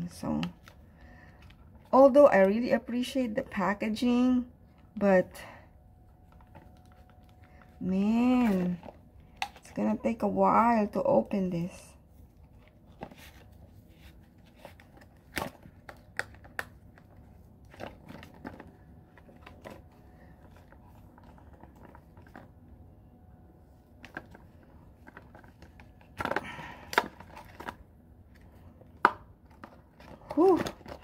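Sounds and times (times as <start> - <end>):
plastic packaging clicks and crinkles: 14.4 - 22.5, 24.0 - 27.8, 29.0 - 31.0
packaging rustling: 24.0 - 27.8.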